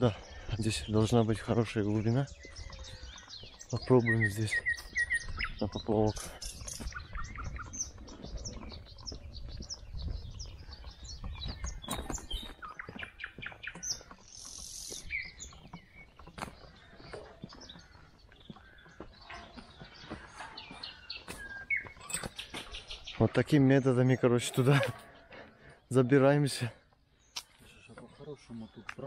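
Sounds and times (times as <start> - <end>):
songbirds chirping and whistling: 0.0 - 29.0.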